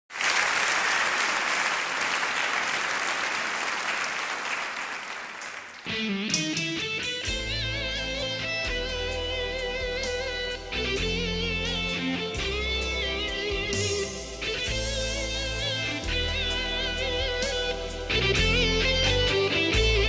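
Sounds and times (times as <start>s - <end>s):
audience applause: 0.0s - 6.1s
electric guitar-like lead with vibrato: 5.8s - 20.0s
keyboard drums and bass accompaniment: 6.2s - 20.0s.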